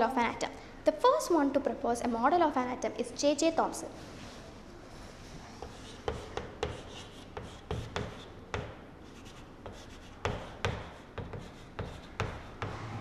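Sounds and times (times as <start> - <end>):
chalk tapping and scratching: 5.4 - 12.8.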